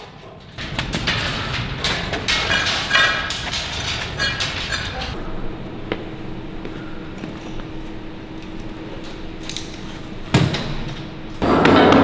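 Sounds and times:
hoist chain clinking and rattling: 0:00.0 - 0:05.2
steady low hum: 0:00.0 - 0:11.6.

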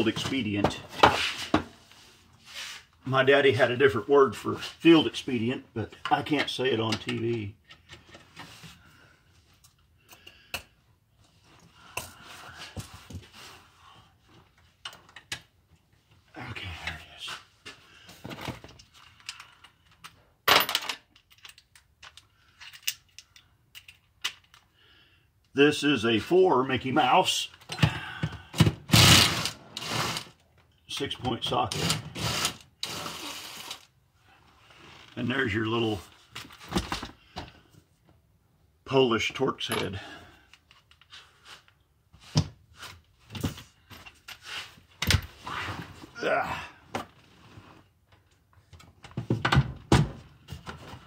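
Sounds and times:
rustling and shuffling: 0:00.0 - 0:03.1, 0:11.2 - 0:14.8, 0:40.7 - 0:46.2, 0:50.1 - 0:51.0.

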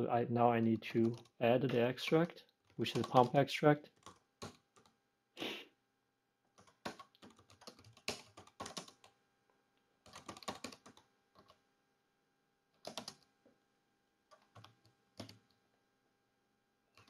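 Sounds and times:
typing on computer keyboard: 0:01.0 - 0:01.4, 0:02.0 - 0:05.0, 0:06.6 - 0:09.2, 0:10.0 - 0:11.6, 0:12.8 - 0:13.3, 0:14.3 - 0:15.6.

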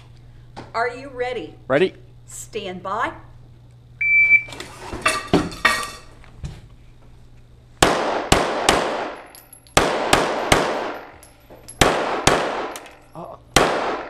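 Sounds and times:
shot timer beep: 0:04.0 - 0:04.5
pistol shots ringing indoors: 0:07.8 - 0:13.0, 0:13.6 - 0:14.0.

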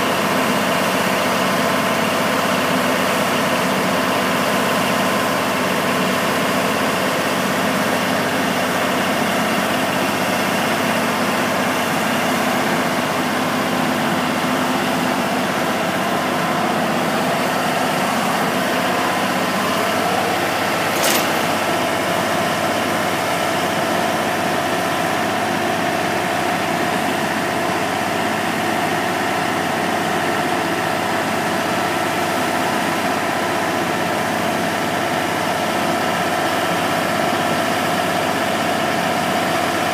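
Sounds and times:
sharp click: 0:20.9 - 0:21.5.

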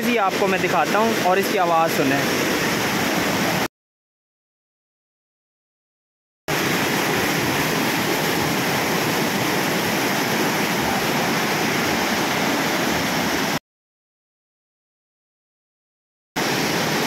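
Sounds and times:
fast water current rushing: 0:00.0 - 0:03.7, 0:06.5 - 0:13.6, 0:16.4 - 0:17.0.

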